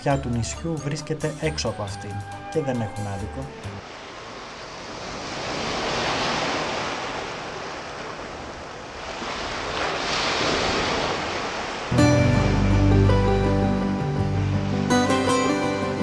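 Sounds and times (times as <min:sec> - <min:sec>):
surf breaking on beach: 0:03.8 - 0:12.0.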